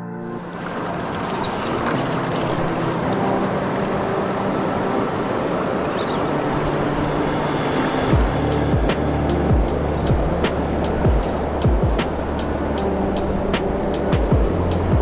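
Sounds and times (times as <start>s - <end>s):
river water rushing: 0.2s - 15.0s.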